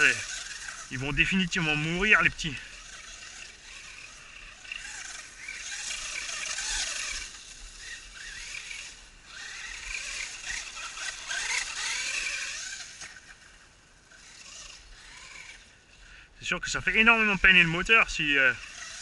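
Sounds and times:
electric motor whining: 0.0s - 19.0s
tyres churning through dry leaves: 0.0s - 19.0s.

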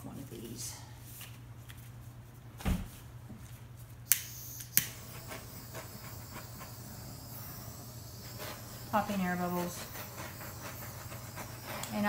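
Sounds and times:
torch igniter clicks: 4.1s - 6.4s.

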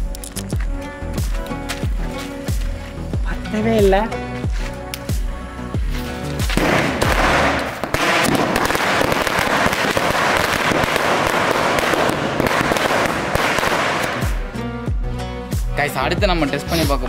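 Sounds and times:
string of firecrackers crackling: 4.4s - 14.6s.

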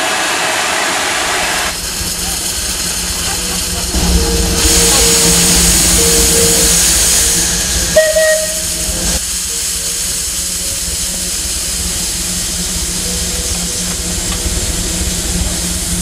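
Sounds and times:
steam hissing: 0.0s - 16.0s
low hum: 1.3s - 16.0s
whistle-like tone: 4.0s - 11.0s.

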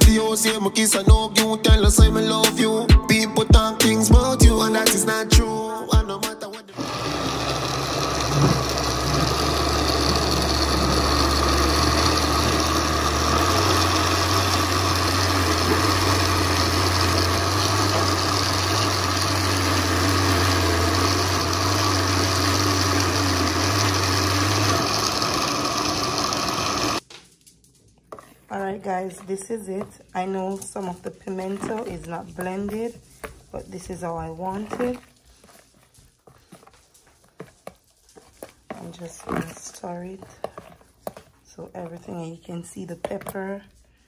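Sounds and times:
music: 0.0s - 6.8s
blender motor running: 6.7s - 27.0s.

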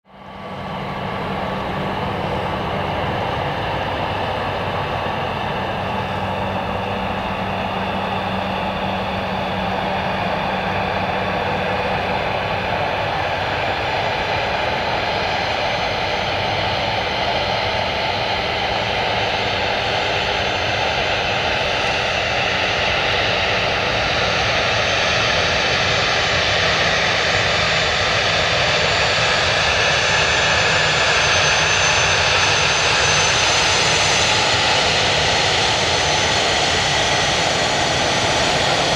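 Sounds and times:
higher whine: 0.2s - 14.7s
jet engines whining: 0.2s - 38.9s.

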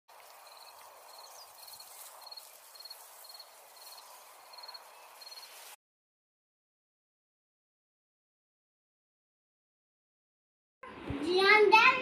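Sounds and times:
soft outdoor hiss: 0.1s - 5.8s
cricket chirping: 0.2s - 5.7s.

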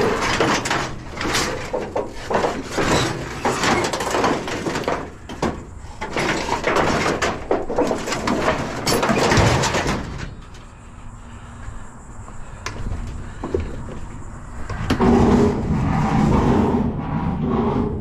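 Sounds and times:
scrap metal clattering and scraping: 0.0s - 10.8s, 14.7s - 18.0s.

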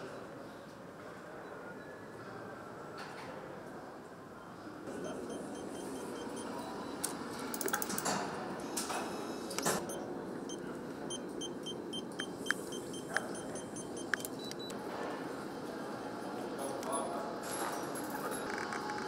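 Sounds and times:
room hum: 4.4s - 17.3s
short electronic beeps: 5.0s - 7.0s, 9.8s - 14.7s.

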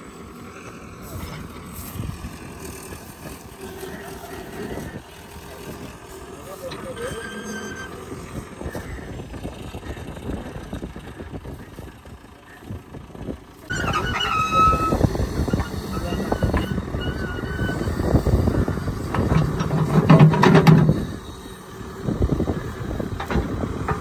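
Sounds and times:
excavator diesel engine and hydraulics: 0.0s - 24.0s
brief high squeal: 6.9s - 8.0s, 13.7s - 17.9s.

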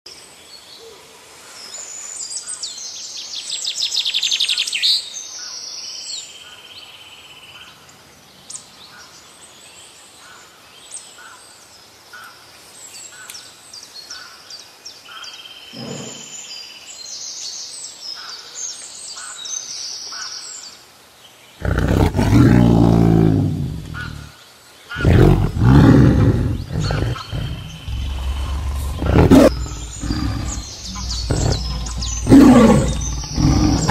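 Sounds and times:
birds chirping: 15.7s - 16.5s, 21.6s - 24.4s, 25.0s - 33.9s
big cat roaring: 15.8s - 16.4s, 21.6s - 24.3s, 25.0s - 33.9s.

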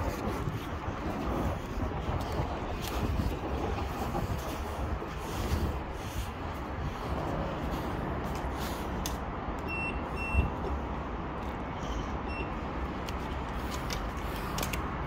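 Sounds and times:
card reader beeps: 9.6s - 10.5s, 12.2s - 12.6s.

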